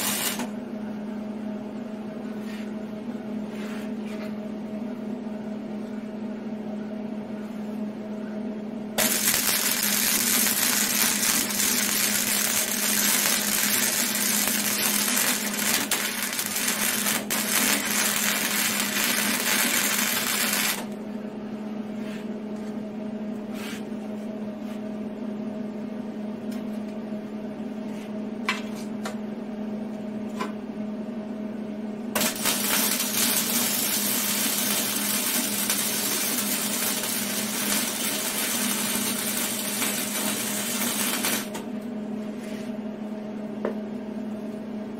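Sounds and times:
welder arc crackling: 0.0s - 0.5s, 9.0s - 21.0s, 32.2s - 41.7s
steady low hum: 0.0s - 44.9s.

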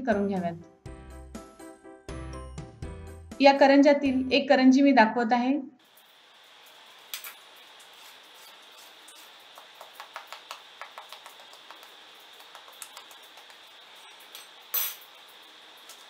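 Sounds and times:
fork tapping on crisp pastry: 9.6s - 11.9s.

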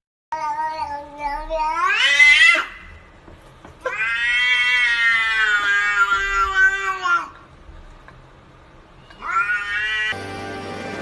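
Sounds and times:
cat meowing: 0.3s - 2.8s, 3.8s - 7.4s, 9.0s - 10.2s.

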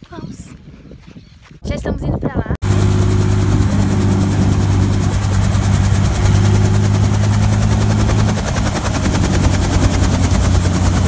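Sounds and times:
helicopter rotor beating: 2.6s - 11.0s.

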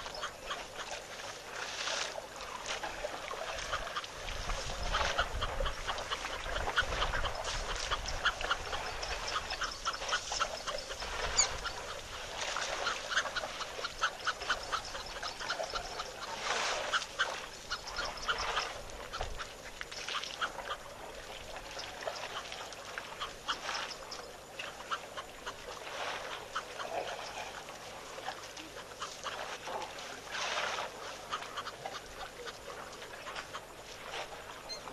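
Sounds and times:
ducks calling: 3.5s - 20.8s.

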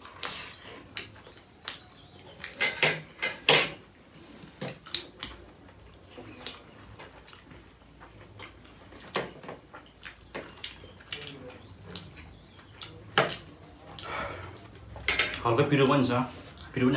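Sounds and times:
forks clinking on ceramic plates: 15.1s - 15.4s.

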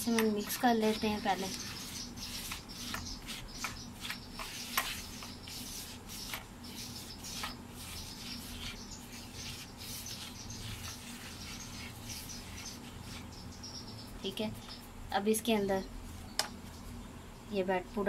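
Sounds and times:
fingers stirring flour: 0.0s - 13.6s
squeaky scrapes on plastic: 0.5s - 13.3s.

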